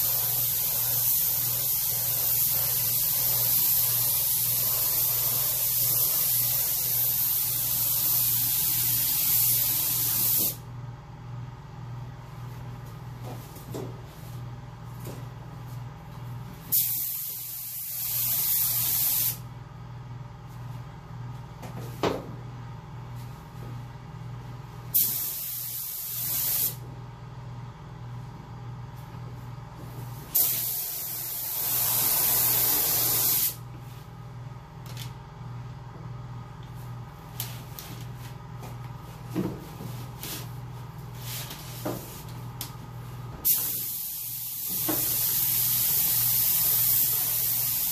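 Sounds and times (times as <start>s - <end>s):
steady low hum: 0.0s - 47.9s
spray gun hissing: 30.3s - 33.6s.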